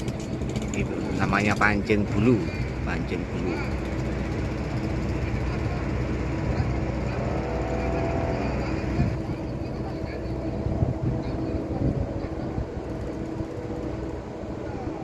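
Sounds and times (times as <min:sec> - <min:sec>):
ship machinery humming: 0:00.0 - 0:15.0
faint voices: 0:04.6 - 0:15.0.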